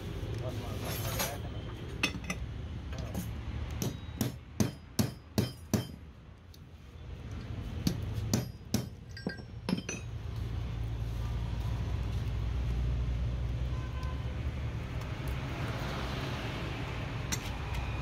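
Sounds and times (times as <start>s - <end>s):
hammer tapping on metal: 3.7s - 6.1s, 7.8s - 10.1s.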